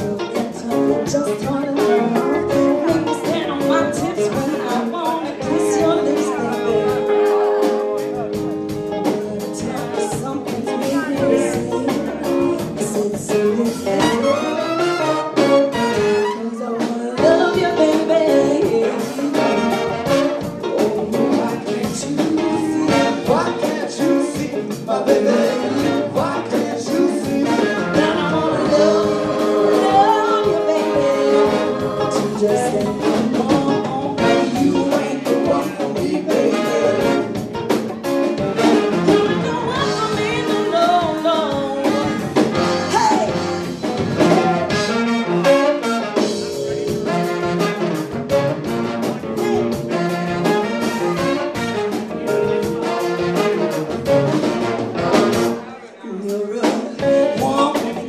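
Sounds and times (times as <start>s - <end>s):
woman singing lead: 0.0s - 7.8s, 8.9s - 38.4s, 39.0s - 43.6s, 56.0s - 58.0s
electric guitar: 0.0s - 55.6s
drums: 0.0s - 58.0s
horn section long notes: 13.9s - 16.6s, 19.3s - 20.7s, 41.9s - 55.6s.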